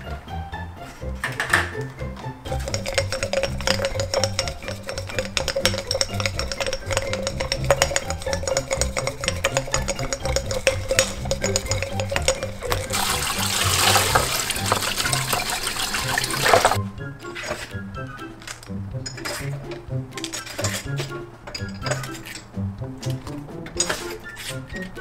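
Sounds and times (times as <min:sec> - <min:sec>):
music with steady beat: 0:00.0 - 0:25.0
tap running water into sink: 0:09.5 - 0:16.8.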